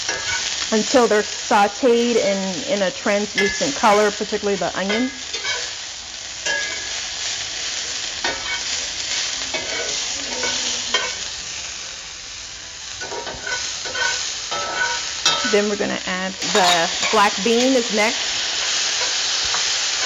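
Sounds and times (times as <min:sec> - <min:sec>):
vegetables sizzling in a skillet: 0:00.0 - 0:20.0
metal spatula scraping: 0:03.3 - 0:04.2, 0:04.8 - 0:05.7, 0:09.5 - 0:11.2, 0:13.0 - 0:15.6, 0:16.4 - 0:19.3.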